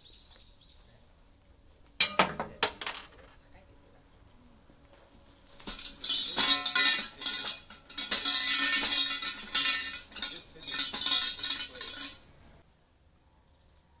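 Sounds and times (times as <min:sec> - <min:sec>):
metallic jingling shaken: 0:05.7 - 0:12.3.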